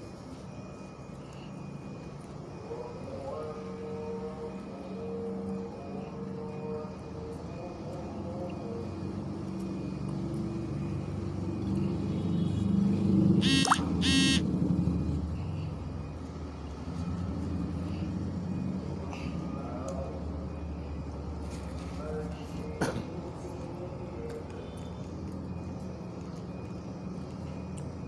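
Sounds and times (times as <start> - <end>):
vehicle passing by: 10.2 - 19.6
short horn beeps: 13.4 - 14.5.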